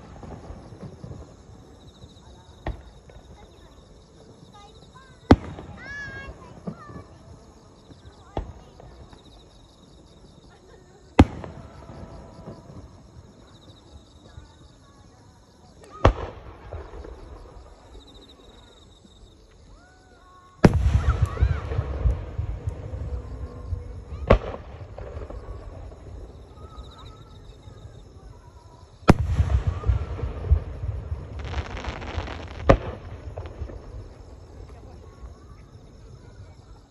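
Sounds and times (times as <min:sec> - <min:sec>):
rumble and crackle of fireworks: 0:00.0 - 0:36.9
firework shells booming: 0:16.0 - 0:17.7, 0:20.6 - 0:26.5, 0:29.0 - 0:34.8.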